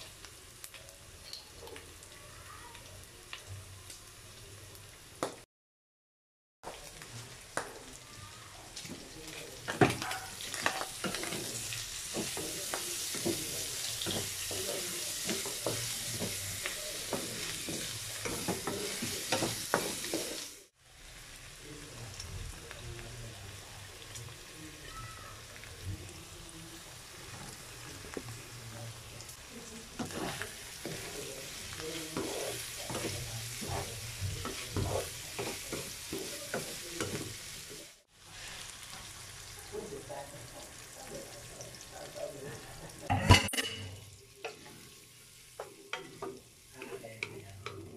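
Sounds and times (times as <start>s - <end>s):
meat sizzling in a wok: 0.0s - 5.4s, 6.6s - 47.9s
spatula scraping a pan: 9.8s - 20.5s, 30.0s - 37.6s.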